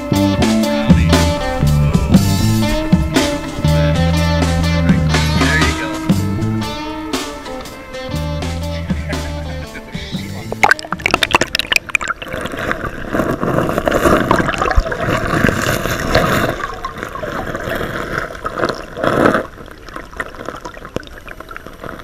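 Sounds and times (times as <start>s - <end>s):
river water gurgling underwater: 10.4s - 22.0s.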